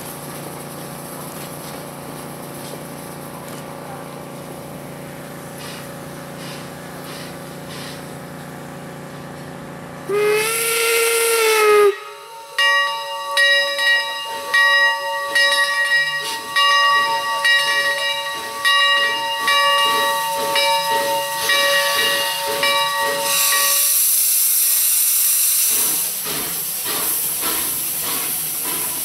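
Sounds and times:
steam locomotive whistle: 10.0s - 26.1s
bell-like ringing: 12.6s - 23.9s.

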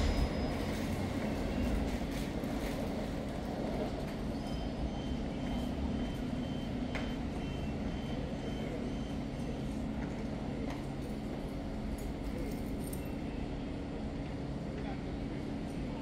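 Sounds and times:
door-closing warning beeps: 0.0s - 1.6s
electric train humming: 0.0s - 12.4s.

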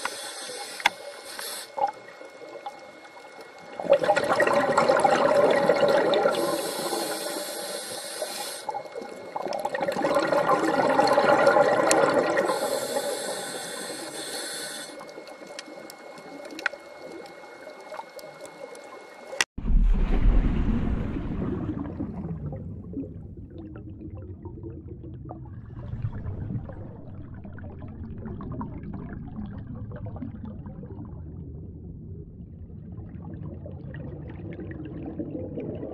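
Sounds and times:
regulator inhale hiss: 0.0s - 1.9s, 6.3s - 9.0s, 12.3s - 15.2s
exhaled bubbles gushing: 1.7s - 7.2s, 8.6s - 14.1s, 15.0s - 35.9s.

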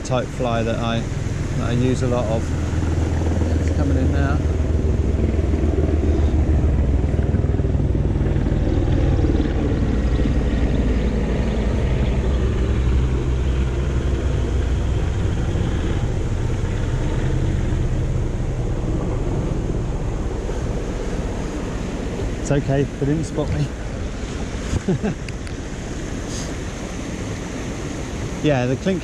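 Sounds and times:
helicopter passing overhead: 0.0s - 29.0s.

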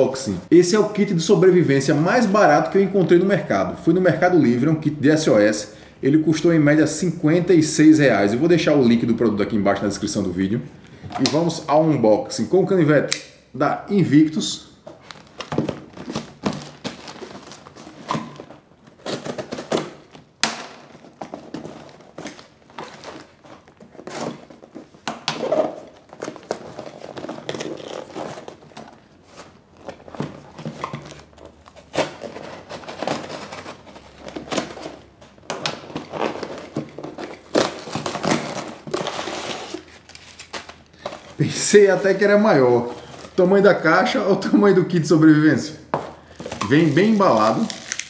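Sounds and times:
plastic packaging crinkling: 14.9s - 43.9s, 46.2s - 48.0s.

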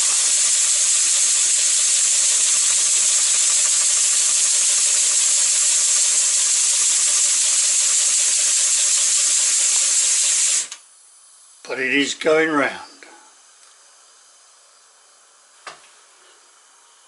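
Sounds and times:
paddle wheels spinning: 0.0s - 10.7s
model steam engine hissing: 0.0s - 10.8s.

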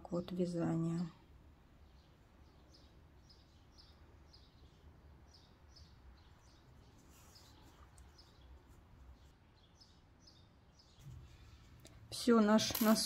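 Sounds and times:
faint bird chirping: 0.0s - 13.0s.

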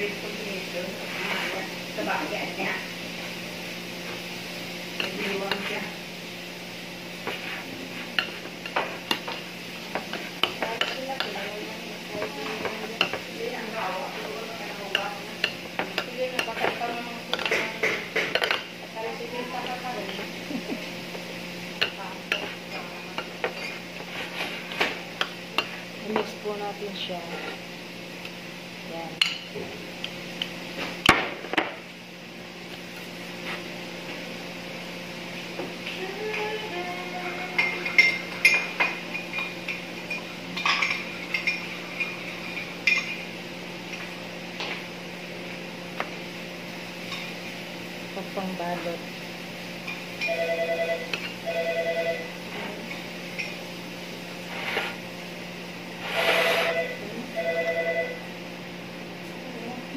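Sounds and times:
telephone ringing: 50.3s - 52.3s, 56.6s - 58.2s
spoon scraping a bowl: 56.0s - 56.9s.

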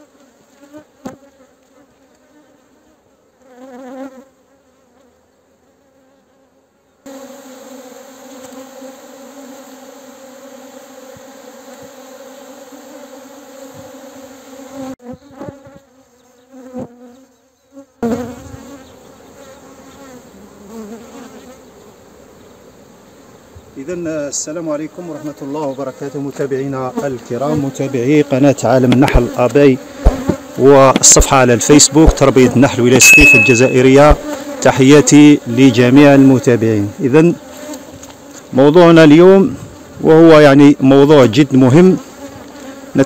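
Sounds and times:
honeybees buzzing: 0.0s - 43.0s
sharp knocks: 30.0s - 30.4s.

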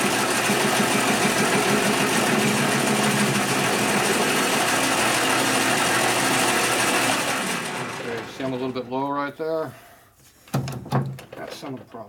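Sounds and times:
metal lathe humming: 0.0s - 8.9s.

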